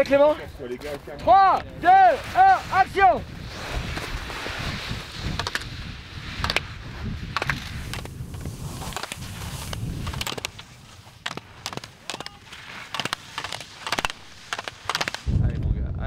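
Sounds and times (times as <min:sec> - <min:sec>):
skis scraping over hard snow: 0:01.8 - 0:15.4
sharp clacks: 0:06.4 - 0:06.7, 0:08.8 - 0:15.3.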